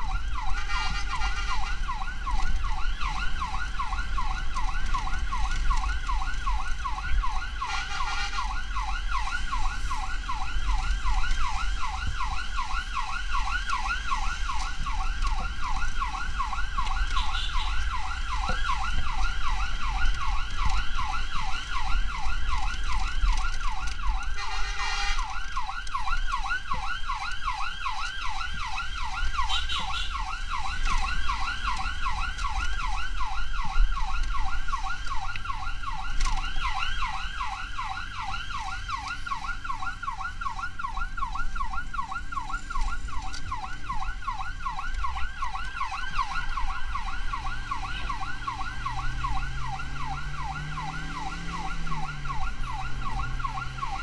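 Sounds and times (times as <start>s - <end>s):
emergency siren yelping: 0.0s - 54.0s
low vehicle rumble: 37.1s - 54.0s.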